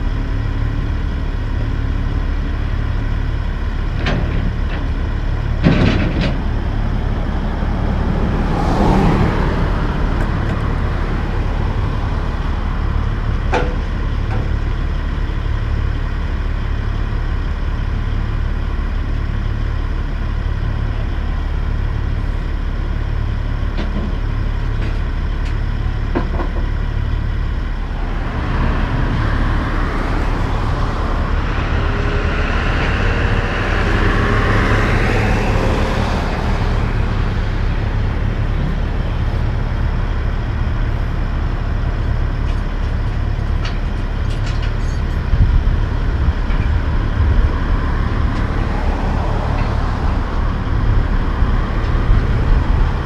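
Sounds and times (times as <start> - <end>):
diesel truck engine idling: 6.3 - 53.0
rushing noise: 27.0 - 53.0.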